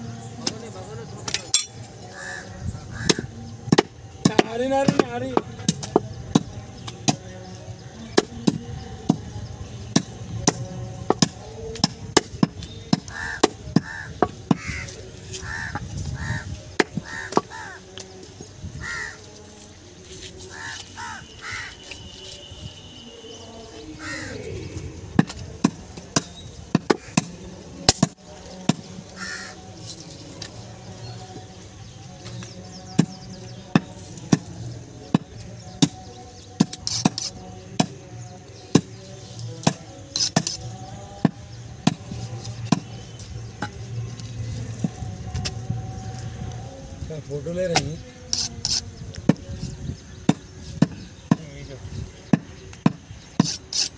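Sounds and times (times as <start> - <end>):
bird calling: 0.0 - 3.5, 12.7 - 18.2, 20.4 - 25.6, 29.1 - 29.8
cleaver chopping meat and bone: 3.0 - 7.3, 9.9 - 14.8, 25.2 - 29.0, 35.1 - 39.0, 39.6 - 43.8, 50.2 - 51.4.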